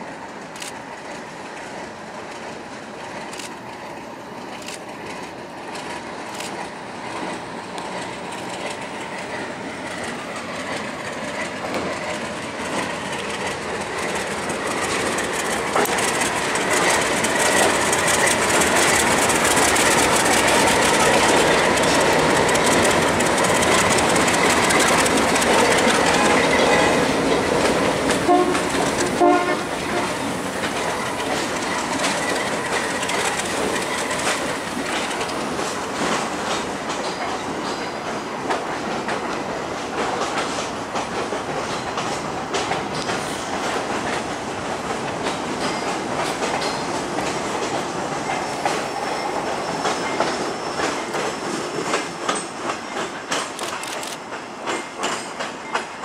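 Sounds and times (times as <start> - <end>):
diesel locomotive engines: 0.0 - 56.0
wheels clicking over rail joints: 0.3 - 56.0
train horn toots: 28.2 - 30.2.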